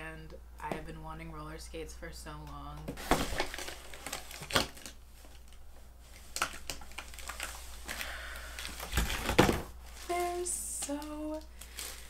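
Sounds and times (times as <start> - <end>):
packing tape and cardboard snapping: 3.0 - 5.6
rustling: 3.0 - 12.0.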